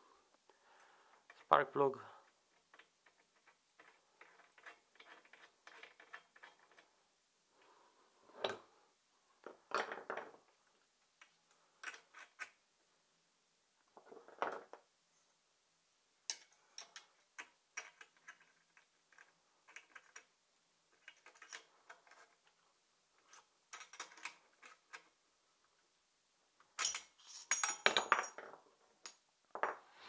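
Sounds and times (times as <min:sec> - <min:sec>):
metal tools clicking and clinking: 0:26.8 - 0:28.4.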